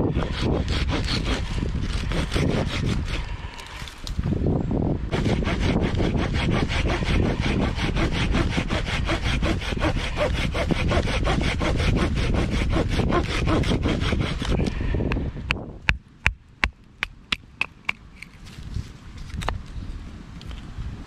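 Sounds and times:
hand saw cutting through branch: 0.0s - 4.2s, 5.1s - 15.2s.

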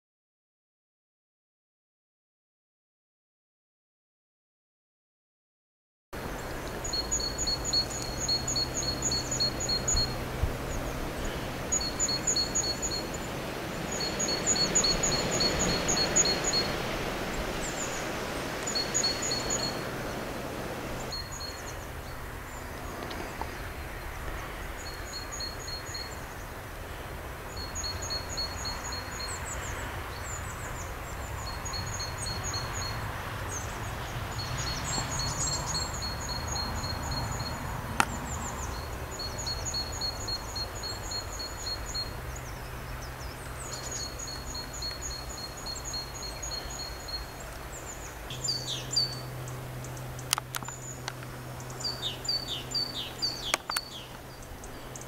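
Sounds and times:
wind noise: 6.2s - 25.3s.

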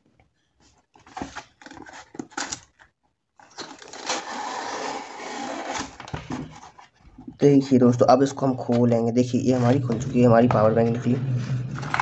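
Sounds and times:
cardboard rubbing scrape: 3.6s - 7.4s.

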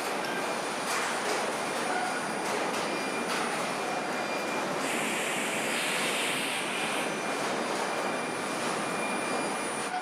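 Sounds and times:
factory machinery noise: 0.0s - 10.0s
hiss: 4.8s - 7.1s.

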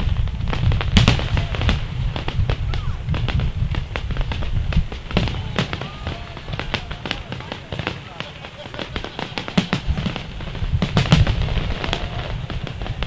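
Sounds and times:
firework shells bursting: 0.0s - 13.0s.

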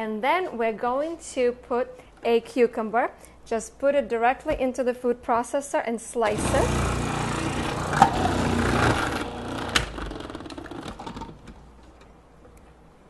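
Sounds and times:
food processor motor running: 6.3s - 11.2s.

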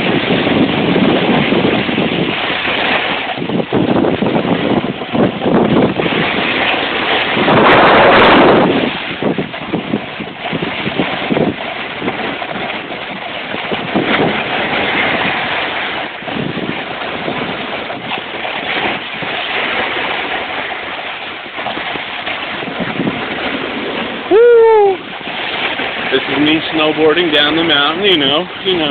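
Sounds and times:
snowboard scraping over snow: 0.0s - 28.9s
wind buffeting microphone: 0.0s - 28.9s.

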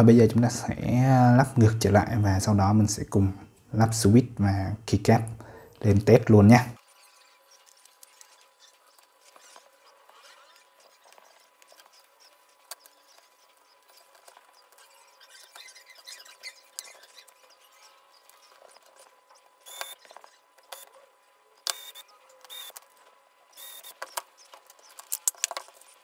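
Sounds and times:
plastic parts scraping: 7.0s - 21.0s, 21.7s - 26.0s
plastic parts clicking: 23.9s - 26.0s.

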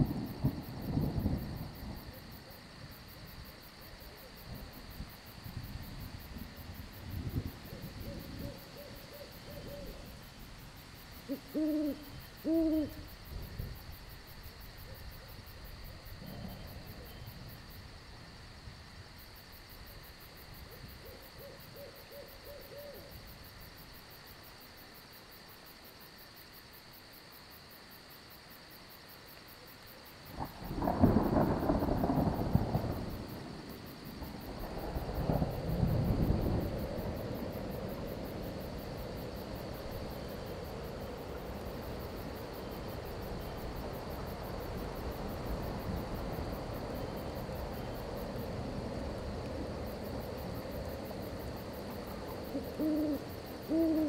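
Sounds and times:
thunder rumbling: 0.0s - 10.7s, 30.3s - 54.0s
crickets chirring: 0.0s - 54.0s
owls hooting: 11.3s - 13.1s, 52.5s - 54.0s.

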